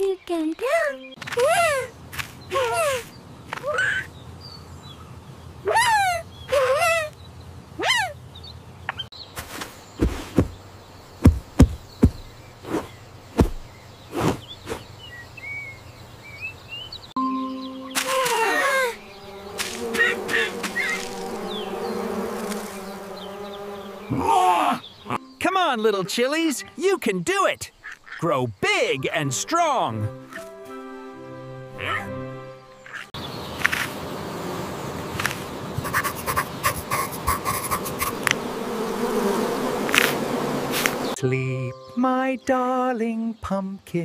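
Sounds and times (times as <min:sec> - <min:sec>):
cartoon bee buzzing: 0:17.5 - 0:25.2, 0:34.0 - 0:41.2.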